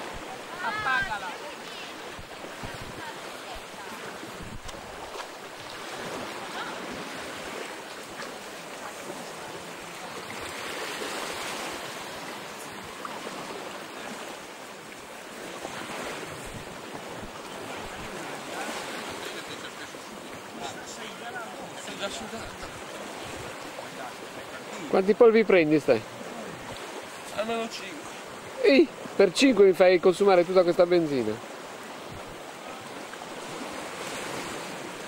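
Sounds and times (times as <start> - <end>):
surf washing onto beach: 0.0 - 35.0
wind gusting on microphone: 1.9 - 7.7, 15.6 - 19.4.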